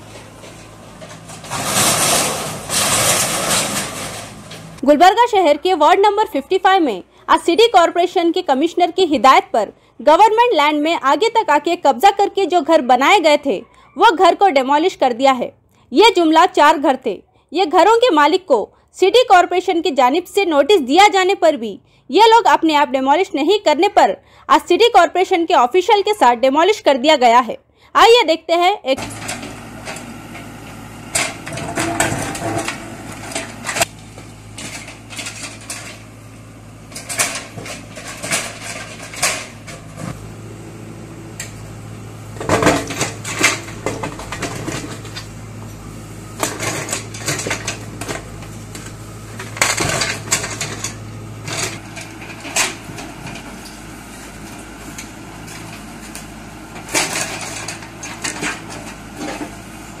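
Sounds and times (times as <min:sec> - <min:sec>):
bucket scraping concrete rubble: 0:00.0 - 0:04.8, 0:31.1 - 0:33.9, 0:36.9 - 0:40.2, 0:42.4 - 0:45.3, 0:56.8 - 0:59.6
diesel engine running: 0:00.0 - 0:27.2, 0:27.8 - 1:00.0
concrete chunks clattering: 0:00.2 - 0:04.8, 0:31.1 - 0:33.9, 0:36.9 - 0:40.0, 0:49.4 - 0:53.4.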